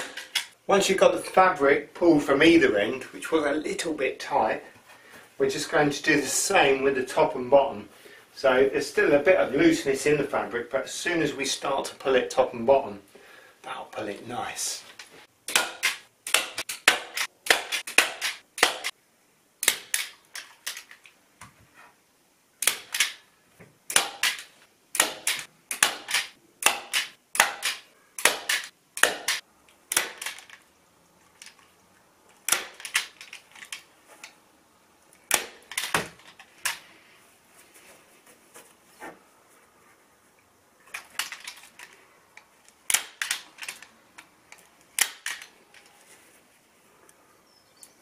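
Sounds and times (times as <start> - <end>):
staple gun firing: 15.5 - 18.9, 23.9 - 30.4, 42.9 - 43.8, 45.0 - 45.5.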